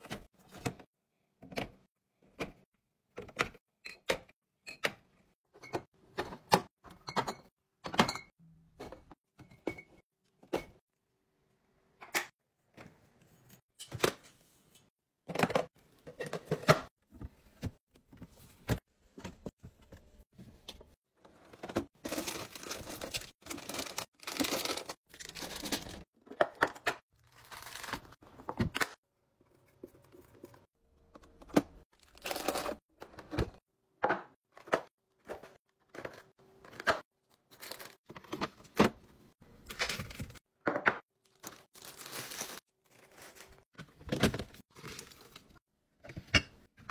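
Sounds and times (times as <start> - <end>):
plastic wrappers crinkling: 22.1 - 26.0, 41.3 - 43.6.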